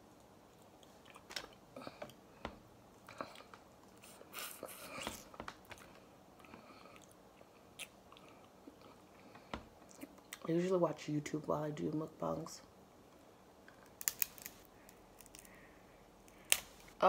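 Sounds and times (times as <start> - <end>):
person chewing: 0.5 - 2.2, 3.0 - 10.4
crab shell cracking: 13.7 - 15.6, 16.3 - 16.8.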